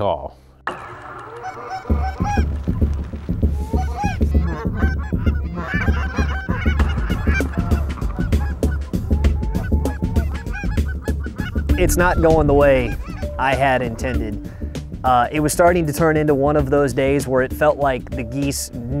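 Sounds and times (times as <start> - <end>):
low pulsing rumble: 0.6 - 15.6
geese honking: 0.6 - 16.9.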